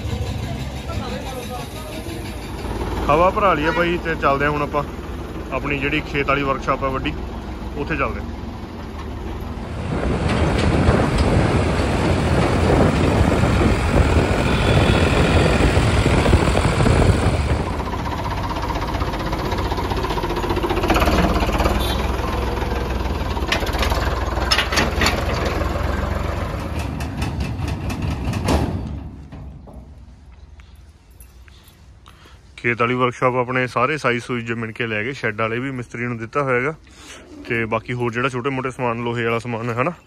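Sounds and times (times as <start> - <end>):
tractor engine running: 0.0 - 30.4.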